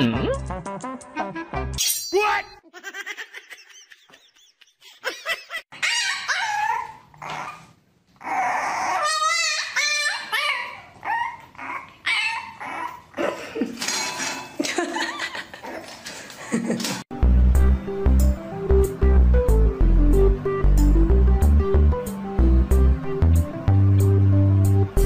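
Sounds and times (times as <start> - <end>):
puppy whining and yipping: 5.7 - 13.1.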